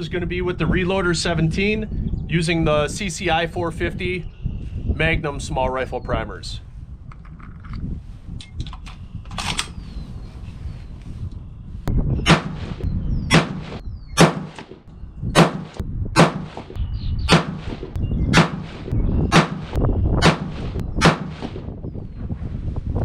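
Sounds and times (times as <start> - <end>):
rifle shots with ringing echo: 12.3 - 14.7, 15.3 - 21.6.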